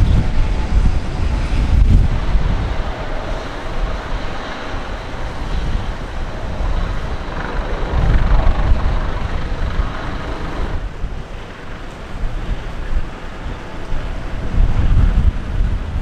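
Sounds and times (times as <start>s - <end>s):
low rumble: 0.0s - 11.3s
wind gusting against microphone: 0.0s - 16.0s.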